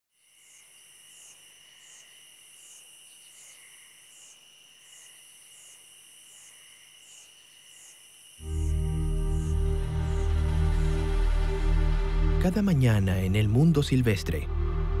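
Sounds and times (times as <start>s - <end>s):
insects trilling: 0.2s - 11.0s
insect chirping: 0.2s - 12.3s.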